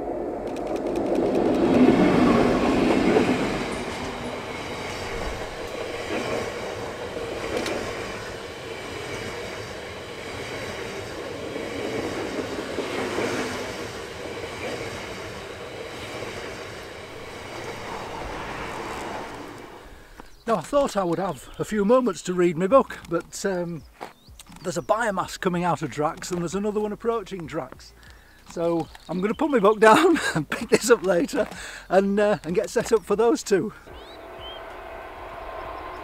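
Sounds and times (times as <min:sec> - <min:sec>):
freight wagons rumbling past: 0:00.0 - 0:10.2, 0:10.8 - 0:22.8, 0:33.7 - 0:36.0
wheels clacking over rails: 0:00.0 - 0:21.7
diesel locomotive passing: 0:00.0 - 0:22.3, 0:33.7 - 0:36.0.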